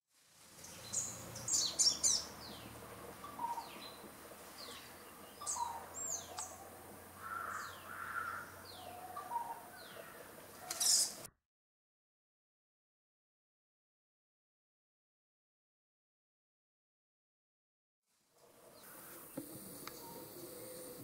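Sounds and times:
bird chirping: 0.6s - 11.3s, 18.7s - 21.0s.

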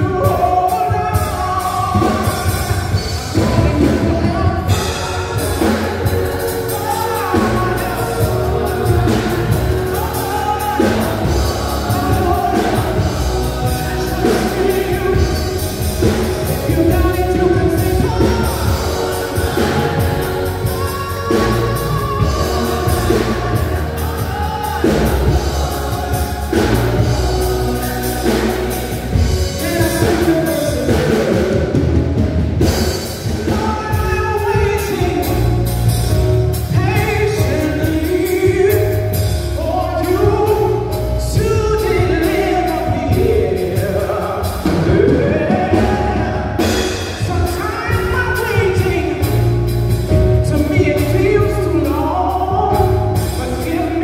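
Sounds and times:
drums: 0.0s - 54.0s
steady bass line: 0.0s - 54.0s
vocal group singing in harmony: 0.0s - 54.0s.

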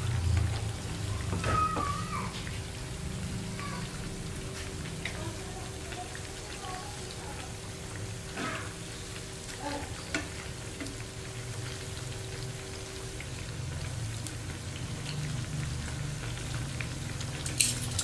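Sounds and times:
food deep-frying in oil: 0.0s - 18.0s
metal tongs clicking: 17.4s - 18.0s.

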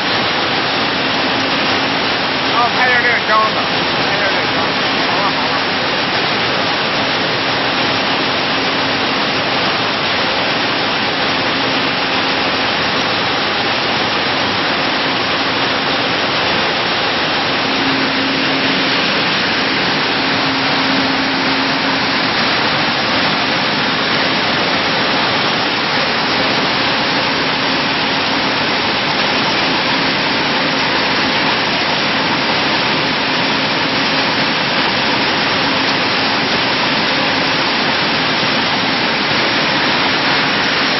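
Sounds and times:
processing machinery running: 0.0s - 40.9s
faint hum: 11.0s - 30.3s.

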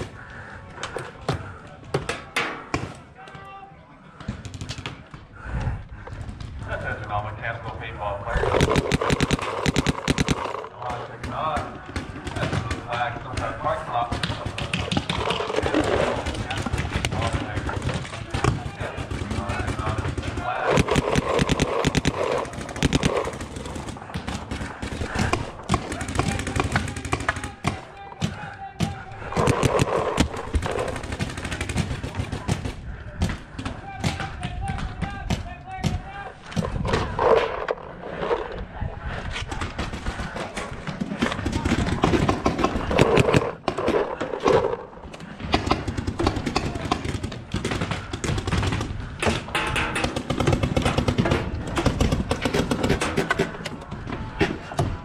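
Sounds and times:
indistinct voices: 0.0s - 55.0s
paintball markers firing: 8.4s - 36.0s, 39.8s - 53.9s.

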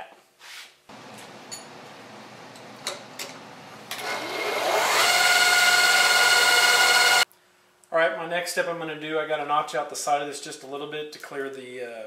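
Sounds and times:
milling machine motor whining: 3.9s - 7.2s.

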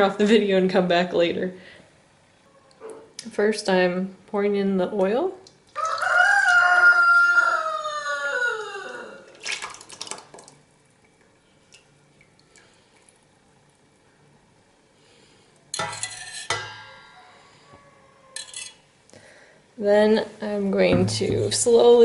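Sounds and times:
rooster crowing: 5.8s - 9.3s, 16.8s - 18.8s
metal pans clanking together: 15.8s - 17.2s, 18.4s - 18.8s.

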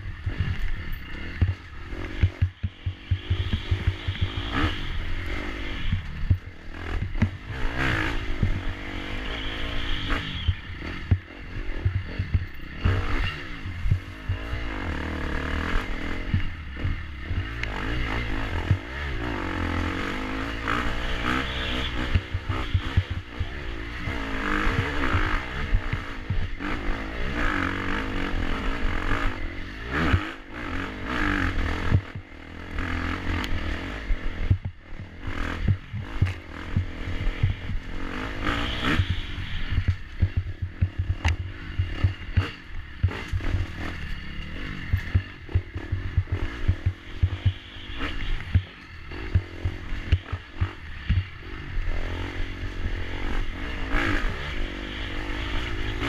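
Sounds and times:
dirt bike engine revving: 0.0s - 56.0s
bike knocking and rattling on bumps: 0.2s - 8.7s, 10.0s - 14.7s, 34.4s - 38.0s, 38.6s - 51.4s.

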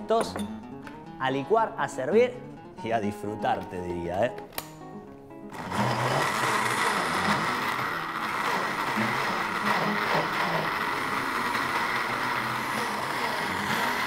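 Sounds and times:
electric blender running: 5.5s - 14.0s.

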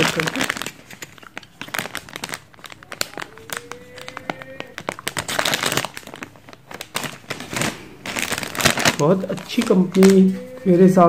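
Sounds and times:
plastic bag crinkling: 0.0s - 11.0s.

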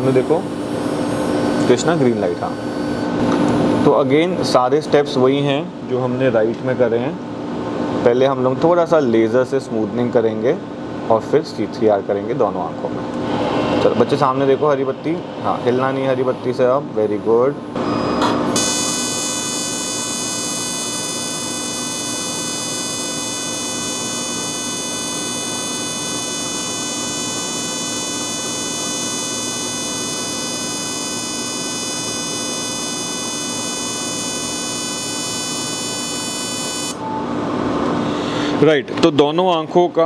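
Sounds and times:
laser pulses buzzing: 18.6s - 37.0s.

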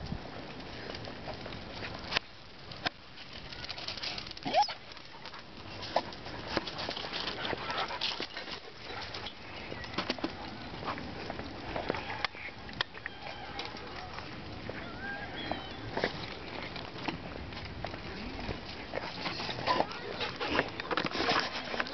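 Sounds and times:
rising chirp-like call: 14.8s - 15.9s.

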